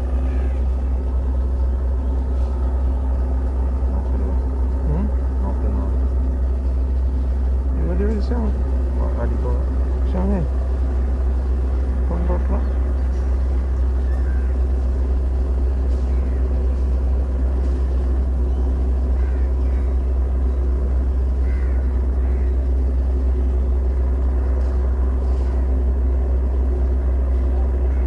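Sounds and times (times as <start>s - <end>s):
constant hum: 0.0s - 28.0s
low rumble: 0.0s - 28.0s
faint chirps: 8.2s - 23.7s.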